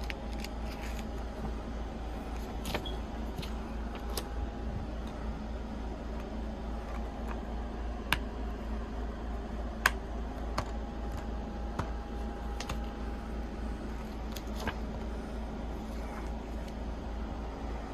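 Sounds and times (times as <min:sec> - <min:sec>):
low hum: 0:00.0 - 0:17.9.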